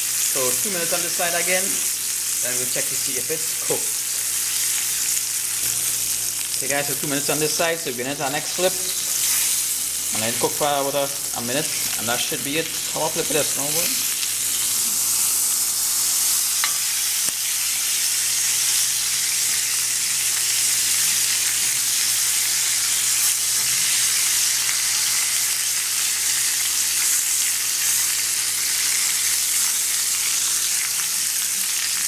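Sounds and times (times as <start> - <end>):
fish sizzling in hot oil: 0.0 - 32.0.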